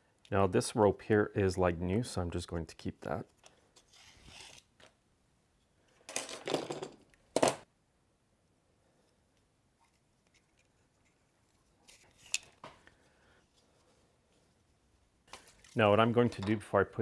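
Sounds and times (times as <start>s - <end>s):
plastic parts clattering: 5.9s - 7.6s
rustling and scraping: 9.8s - 16.6s.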